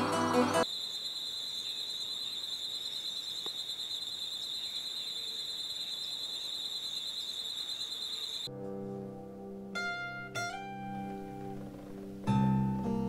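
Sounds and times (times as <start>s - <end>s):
faint bird chirps: 0.6s - 8.5s
high-pitched insect trill: 0.6s - 8.5s.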